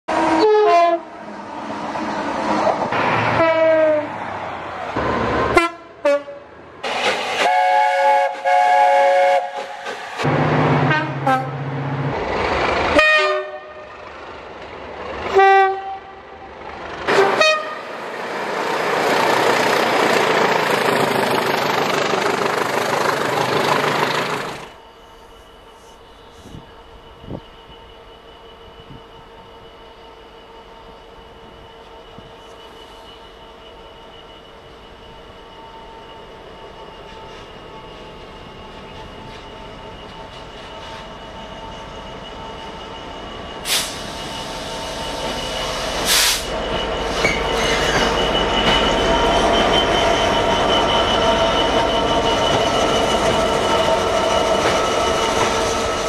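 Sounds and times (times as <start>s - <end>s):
train horn blasts: 0.1s - 1.2s, 3.3s - 4.1s, 5.5s - 6.5s, 7.4s - 9.9s, 10.8s - 11.8s, 12.9s - 14.0s, 15.2s - 16.5s, 17.1s - 18.0s
train engine noise: 0.1s - 56.0s
wheels rushing on rails: 0.1s - 56.0s.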